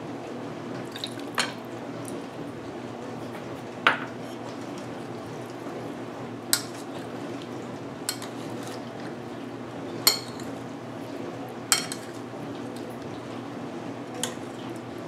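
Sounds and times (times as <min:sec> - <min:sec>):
low background hum: 0:00.0 - 0:15.0
chicken stirred in wet marinade: 0:06.6 - 0:15.0
metal spoon clinking against bowl: 0:08.1 - 0:08.4, 0:10.1 - 0:10.5, 0:11.7 - 0:12.2.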